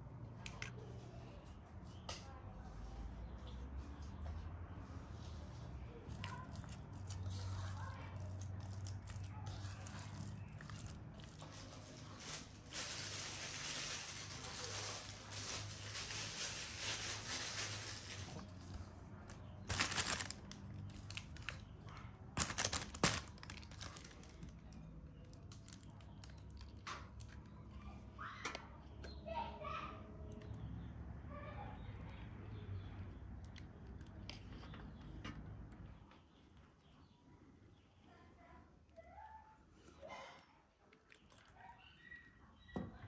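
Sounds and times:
plastic bag crinkling: 6.1 - 18.6, 19.3 - 27.4.

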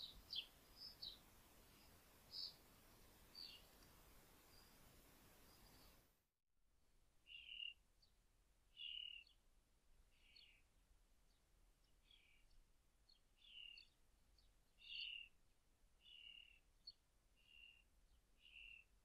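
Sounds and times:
small bird chirping: 0.0 - 6.1, 7.2 - 9.4, 10.1 - 10.7, 11.3 - 15.4, 16.0 - 19.0
faint high ticks: 3.0 - 4.0.

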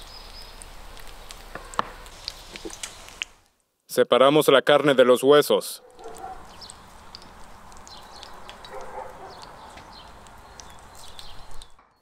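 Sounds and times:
small birds chirping: 0.0 - 3.4, 5.8 - 12.0
steady background hiss: 0.0 - 5.7.

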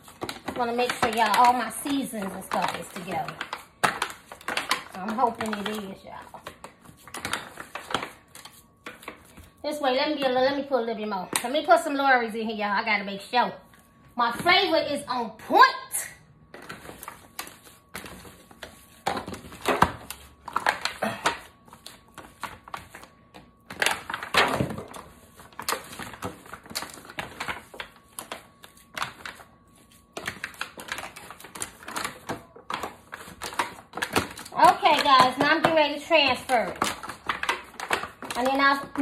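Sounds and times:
foil pan crinkling: 0.0 - 9.6, 16.5 - 39.0.

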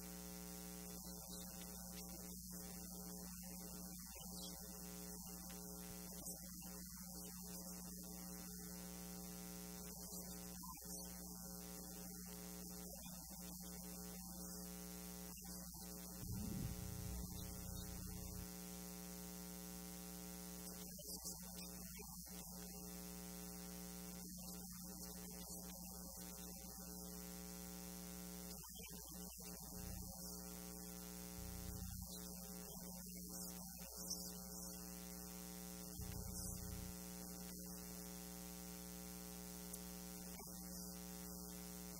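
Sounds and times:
electrical mains hum: 0.0 - 41.9
low thumps: 16.2 - 18.4.

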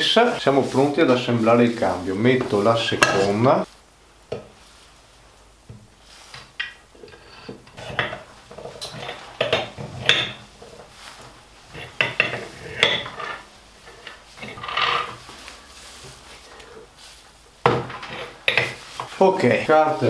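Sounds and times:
metal scrape: 7.0 - 17.3.

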